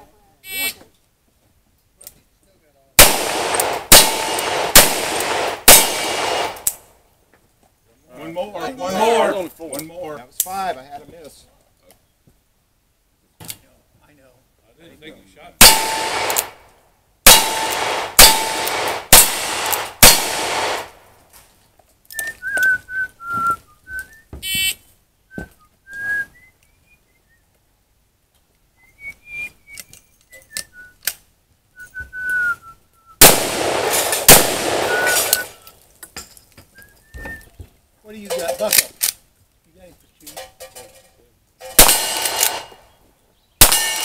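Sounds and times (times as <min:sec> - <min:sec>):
loud rifle shots ringing: 0:03.0 - 0:06.8, 0:15.6 - 0:16.6, 0:17.2 - 0:21.0, 0:33.2 - 0:35.6, 0:41.7 - 0:42.8, 0:43.6 - 0:44.0
short high chirping whistles: 0:22.1 - 0:24.8, 0:34.9 - 0:35.7.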